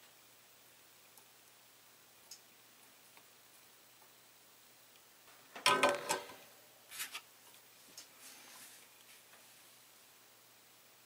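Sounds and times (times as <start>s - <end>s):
tools clattering on a workbench: 5.6s - 6.4s.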